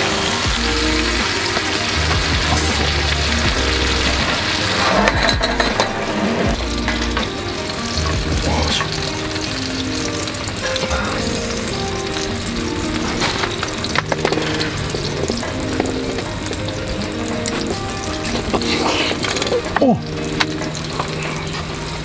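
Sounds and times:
soft background music: 0.0 - 22.0.

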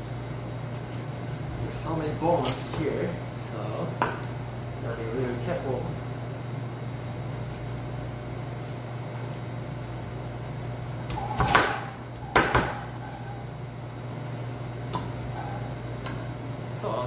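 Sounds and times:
steady low hum: 0.0 - 17.0
knife scraping a cutting board: 0.7 - 1.4.

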